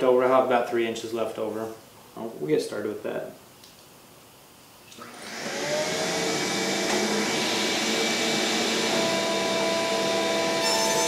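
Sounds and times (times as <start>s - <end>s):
table saw motor whining: 5.0s - 11.0s.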